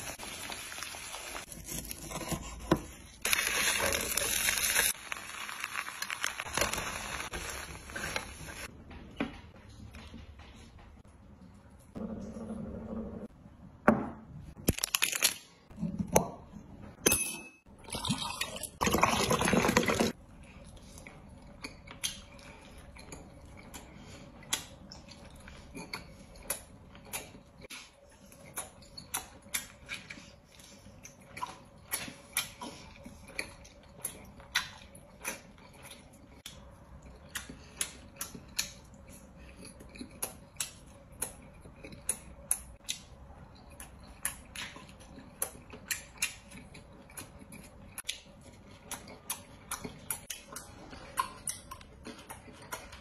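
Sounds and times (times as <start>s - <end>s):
wet chewing and lip-smacking: 20.5s - 53.0s.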